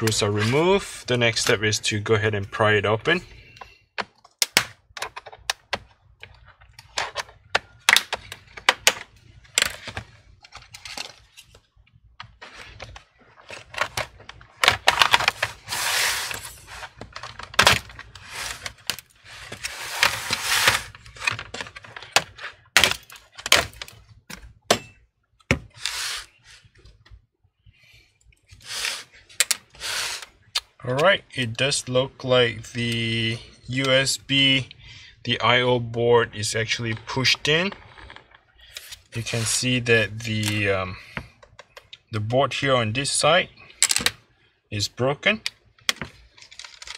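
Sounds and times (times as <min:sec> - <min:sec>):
pry tool scraping: 0:25.7 - 0:26.4.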